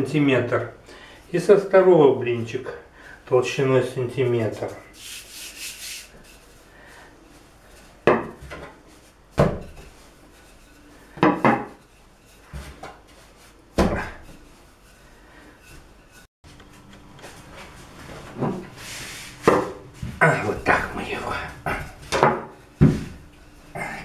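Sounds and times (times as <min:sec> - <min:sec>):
rolling pin rubbing dough: 0:04.4 - 0:16.3.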